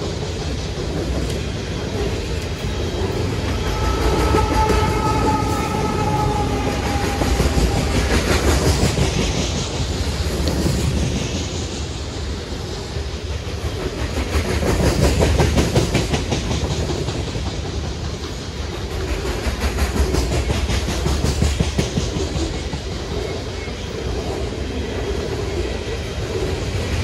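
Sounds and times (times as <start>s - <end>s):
locomotive high whine: 0.0s - 13.9s
train cars rumbling and rattling: 0.0s - 27.0s.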